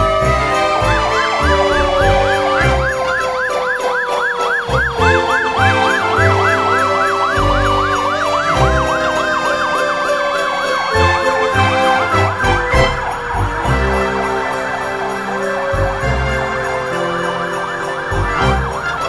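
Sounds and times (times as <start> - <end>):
siren yelp: 0.0 - 19.0
siren tone sliding down: 1.2 - 14.5.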